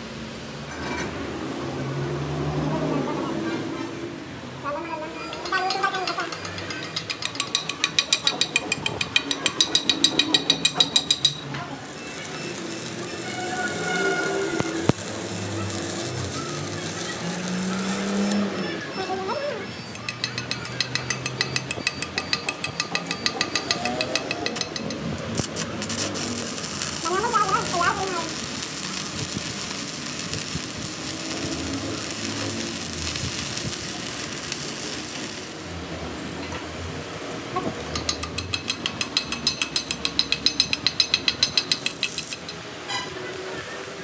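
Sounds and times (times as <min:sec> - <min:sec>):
slag hammer striking metal: 0:05.7 - 0:11.5, 0:19.9 - 0:25.1, 0:37.9 - 0:42.6
electric arc welding crackle: 0:07.0 - 0:18.7, 0:20.0 - 0:36.3, 0:38.2 - 0:44.0.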